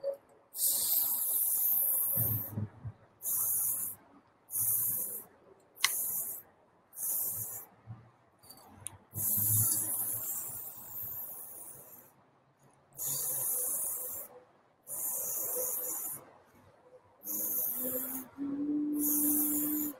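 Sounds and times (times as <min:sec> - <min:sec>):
spray can hissing: 0:00.6 - 0:02.5, 0:03.2 - 0:05.2, 0:05.8 - 0:06.4, 0:07.0 - 0:07.7, 0:09.2 - 0:11.9, 0:13.0 - 0:14.3, 0:14.9 - 0:16.2, 0:17.2 - 0:18.3, 0:19.0 - 0:19.9
sharp click: 0:05.8 - 0:06.1.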